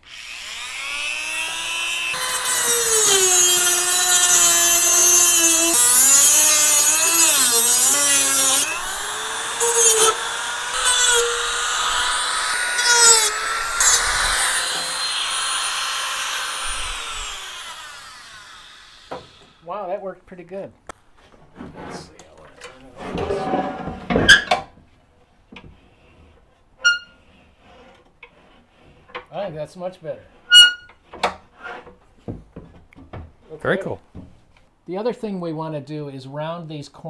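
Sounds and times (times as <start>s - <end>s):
rotary tool grinding metal: 0.0s - 19.6s, 26.8s - 29.2s, 30.3s - 31.9s
rotary tool motor whine: 0.0s - 19.6s.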